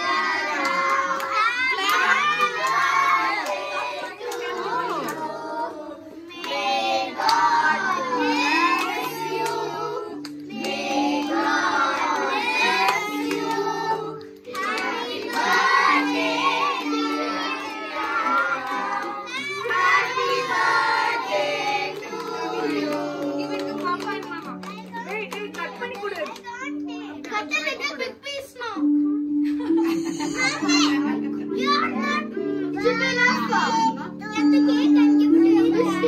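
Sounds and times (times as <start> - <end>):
people clapping along: 0.0 - 5.4, 6.3 - 26.7
group singing a birthday song: 0.0 - 24.3.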